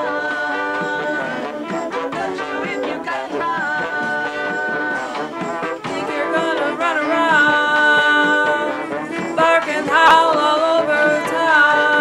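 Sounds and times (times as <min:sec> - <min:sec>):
woman singing into microphone: 0:05.9 - 0:08.8, 0:09.4 - 0:12.0
brass marching band playing: 0:08.6 - 0:10.7.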